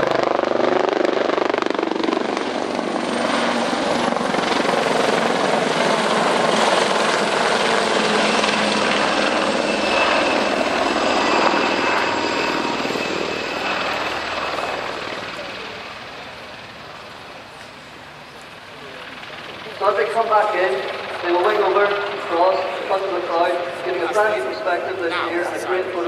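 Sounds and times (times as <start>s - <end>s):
helicopter rotor noise: 0.0s - 26.0s
high turbine whine: 0.0s - 26.0s.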